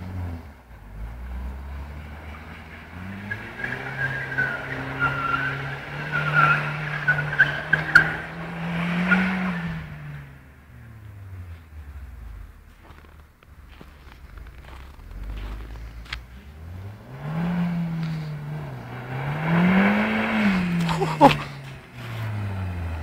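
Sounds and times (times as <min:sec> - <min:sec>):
car engine revving hard: 0:00.0 - 0:13.9, 0:14.6 - 0:23.0
tyre squeal: 0:02.3 - 0:09.9.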